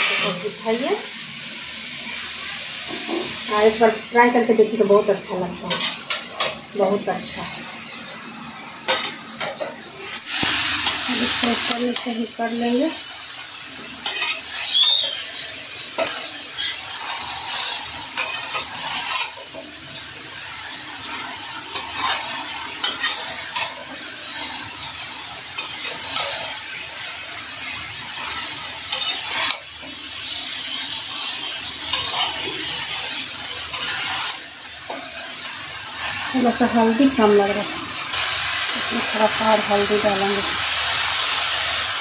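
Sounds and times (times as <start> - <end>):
light sizzle of frying: 0.0 - 42.0
metal spatula scraping pan: 14.0 - 15.2, 28.9 - 29.6, 31.9 - 35.0.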